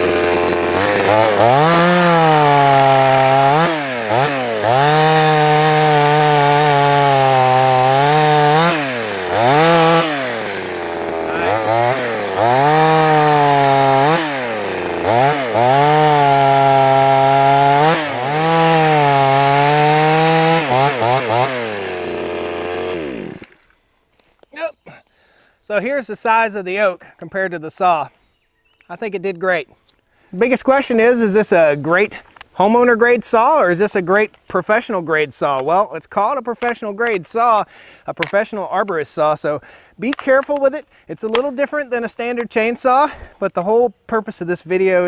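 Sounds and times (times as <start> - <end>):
chainsaw cutting wood: 0.0 - 23.8.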